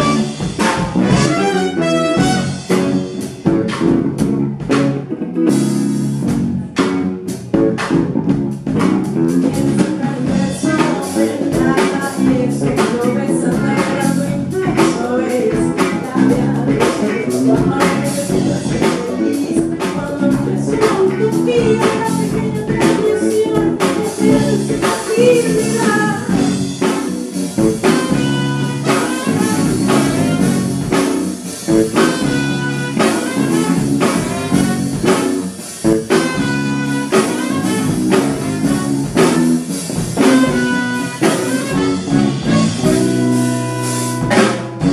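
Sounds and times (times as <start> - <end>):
band playing bass drums saxophone: 0.0 - 44.9
woman singing: 9.4 - 26.6.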